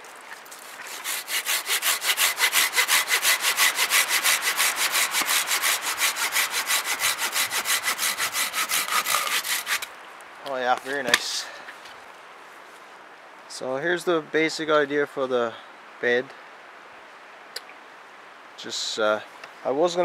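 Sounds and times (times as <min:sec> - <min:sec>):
hand saw cutting wood: 0:00.6 - 0:09.9.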